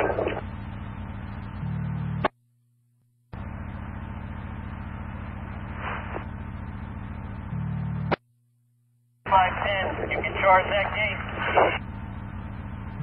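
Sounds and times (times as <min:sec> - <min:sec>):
radio static hiss and hum: 0:00.0 - 0:00.6, 0:01.2 - 0:02.4, 0:04.8 - 0:08.2, 0:09.2 - 0:13.0.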